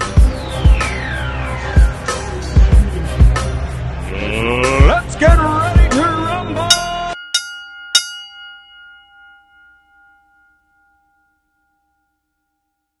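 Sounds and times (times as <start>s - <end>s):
music: 0.0s - 7.2s
voices: 4.0s - 7.0s
boxing ring bell ringing: 6.7s - 13.0s.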